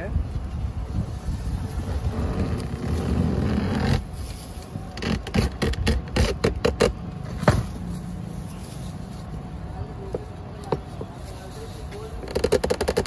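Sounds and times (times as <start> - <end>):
blade cutting coconut husk: 1.9 - 7.6.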